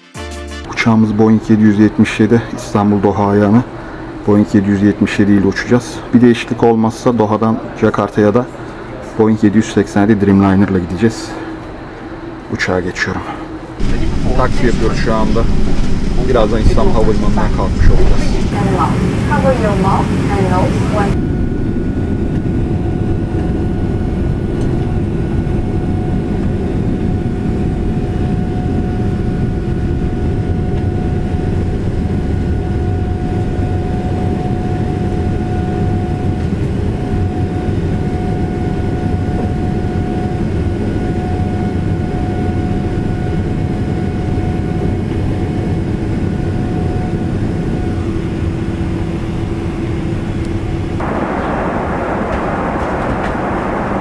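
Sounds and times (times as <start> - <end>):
jet engine and airflow rush: 11.0 - 54.0
humming engine tones: 13.2 - 54.0.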